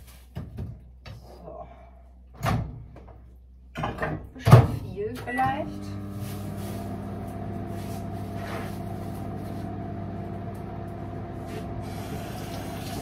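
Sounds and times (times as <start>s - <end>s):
microwave oven humming: 5.3s - 13.0s.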